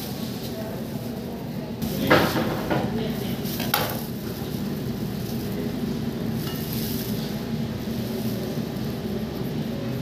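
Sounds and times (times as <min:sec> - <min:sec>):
kitchen equipment humming: 0:00.0 - 0:10.0.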